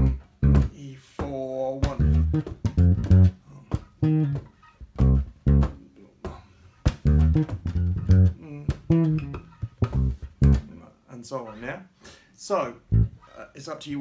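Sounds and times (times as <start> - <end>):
electric bass funk line: 0.0 - 0.8, 1.7 - 5.8, 6.9 - 10.8, 12.9 - 13.2
muted bass dead notes: 0.0 - 5.8, 6.9 - 10.8, 12.8 - 13.2.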